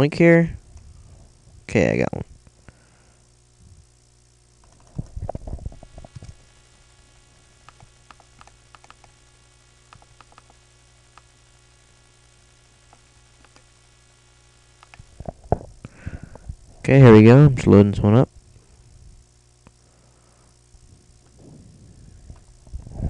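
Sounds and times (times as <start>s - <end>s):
electrical hum: 0.0s - 23.0s
mouse and keyboard clicks: 7.7s - 9.2s, 9.9s - 10.6s.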